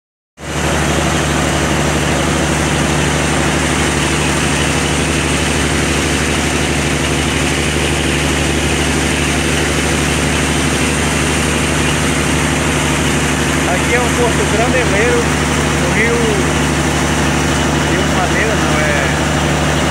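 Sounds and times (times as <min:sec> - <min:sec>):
boat engine droning: 0:00.4 - 0:19.9
churning wake rushing: 0:00.4 - 0:19.9.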